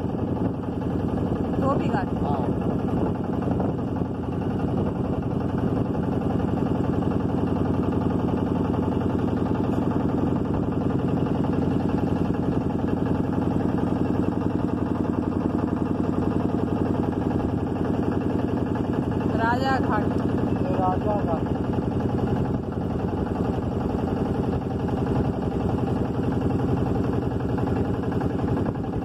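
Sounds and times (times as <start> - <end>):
motorboat engine chugging: 0.0 - 29.0.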